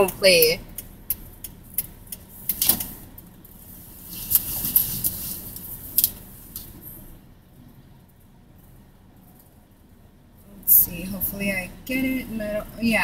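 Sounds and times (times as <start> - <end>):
faint car rumble: 0.0 - 13.0
clothing rustle: 3.8 - 6.3.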